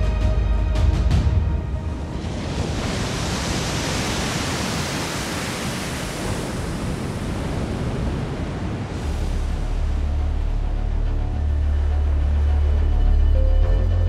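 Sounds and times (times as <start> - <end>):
sea surf breaking: 1.2 - 11.3.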